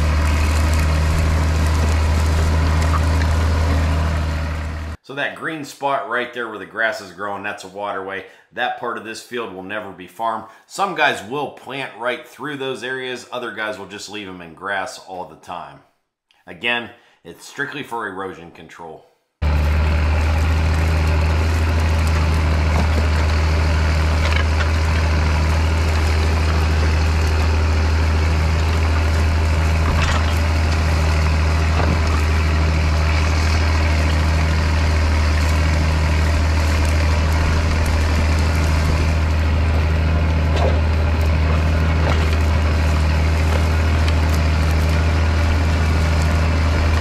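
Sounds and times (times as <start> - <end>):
tractor diesel engine under load: 0.0 - 5.0, 19.4 - 47.0.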